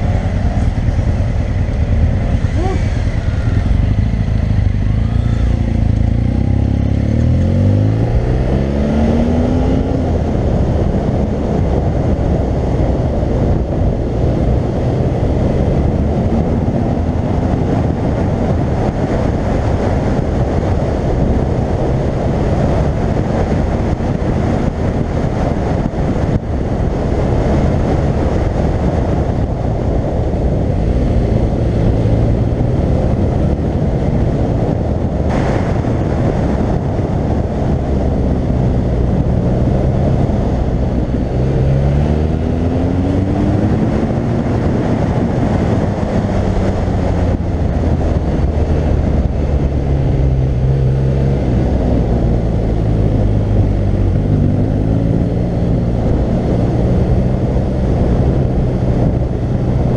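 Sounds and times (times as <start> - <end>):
riding wind on microphone: 0.0 - 59.9.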